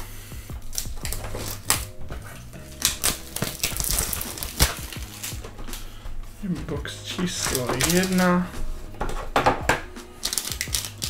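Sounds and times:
cellophane crackling and tearing: 0.6s - 5.8s, 7.2s - 8.4s, 10.0s - 11.0s.

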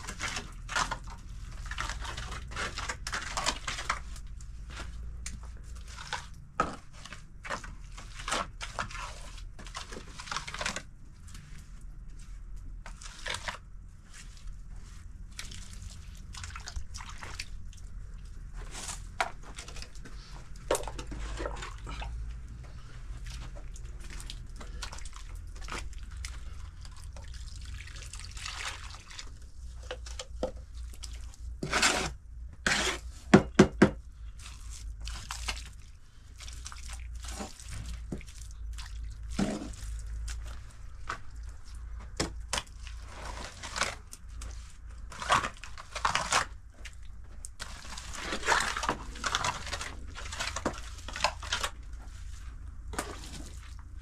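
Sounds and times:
water dripping and splashing: 23.2s - 29.4s
wet plaster slapping: 34.4s - 35.8s, 36.4s - 51.8s.

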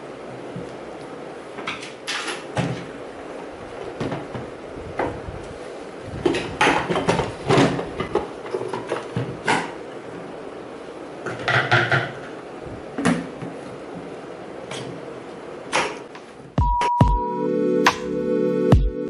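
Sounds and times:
hard plastic parts knocking: 11.3s - 12.3s.

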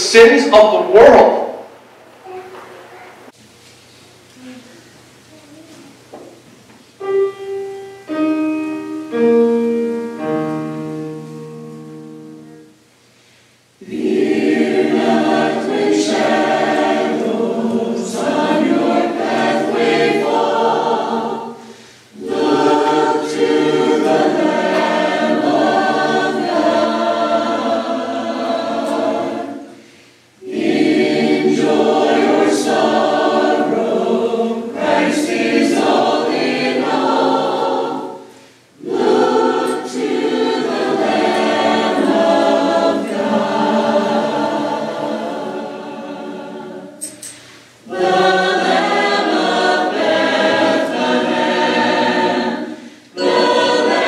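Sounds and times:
choir singing a hymn: 7.0s - 12.8s, 13.7s - 54.0s
choir breaths: 12.9s - 33.6s, 35.8s - 54.0s.

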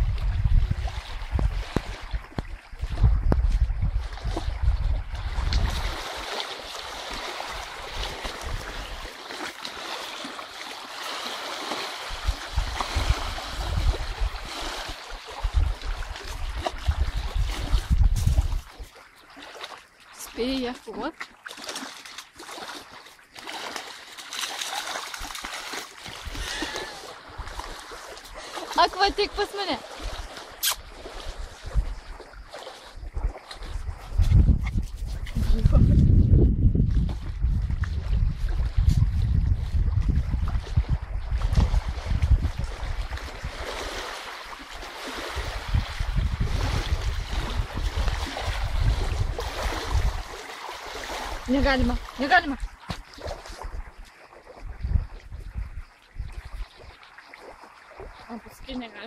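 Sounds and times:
wind rumbling on microphone: 0.0s - 9.9s, 11.1s - 19.1s, 25.0s - 59.0s
lake waves lapping on shore: 0.0s - 36.0s, 36.8s - 59.0s.

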